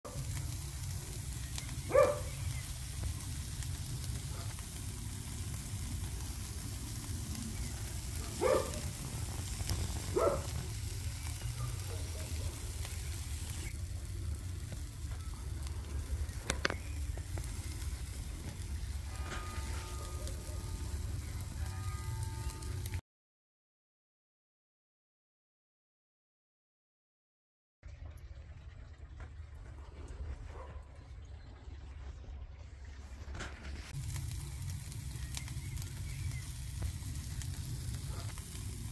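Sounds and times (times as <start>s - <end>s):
meat sizzling on charcoal grill: 0.1s - 23.0s, 33.7s - 38.9s.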